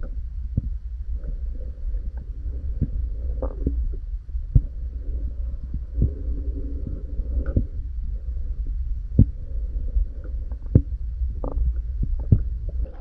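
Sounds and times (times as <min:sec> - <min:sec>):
muffled underwater rumble: 0:00.0 - 0:13.0.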